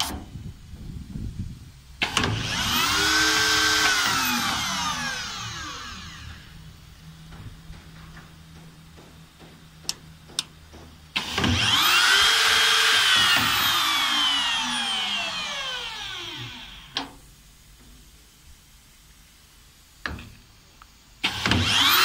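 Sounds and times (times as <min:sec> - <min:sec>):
milling motor whine: 0:02.0 - 0:10.5, 0:11.1 - 0:17.0, 0:21.2 - 0:22.0.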